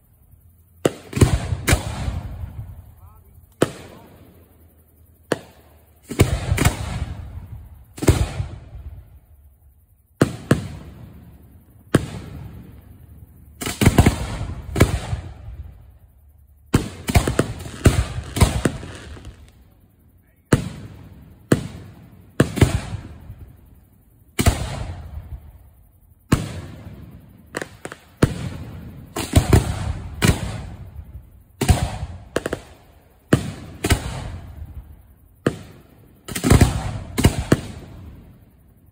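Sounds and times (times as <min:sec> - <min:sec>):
fireworks bursting overhead: 0:00.7 - 0:09.4, 0:10.1 - 0:16.0, 0:16.7 - 0:38.9
firework shells launching: 0:16.8 - 0:19.5.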